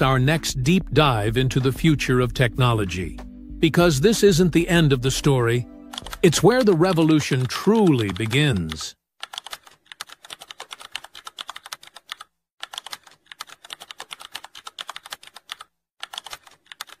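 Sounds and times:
keyboard typing clicks: 0:05.9 - 0:17.0.

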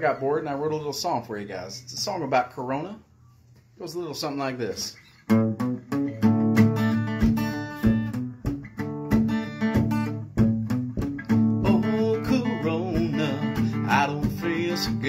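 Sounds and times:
acoustic guitar strumming: 0:05.1 - 0:15.0
man singing: 0:11.6 - 0:15.0.

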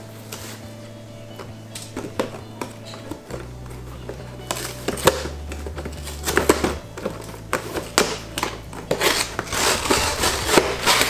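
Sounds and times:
cardboard box clicks and scrapes: 0:04.5 - 0:11.0.

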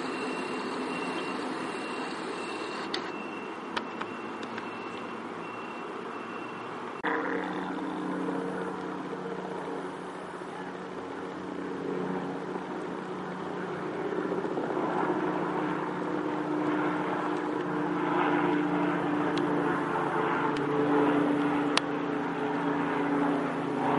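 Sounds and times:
helicopter engine and rotor drone: 0:00.0 - 0:23.9.

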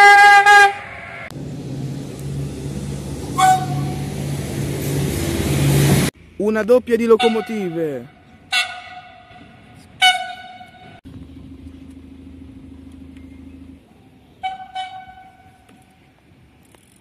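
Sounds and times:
locomotive horn blasts: 0:00.0 - 0:00.9, 0:03.3 - 0:04.2, 0:07.2 - 0:11.0, 0:14.4 - 0:15.7.

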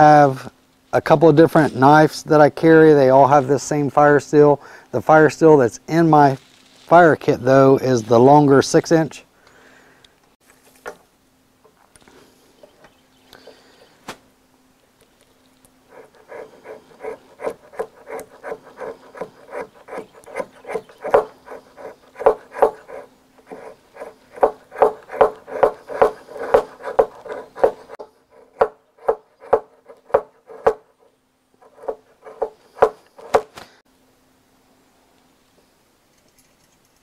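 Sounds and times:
knife scraping wood: 0:15.9 - 0:33.6.

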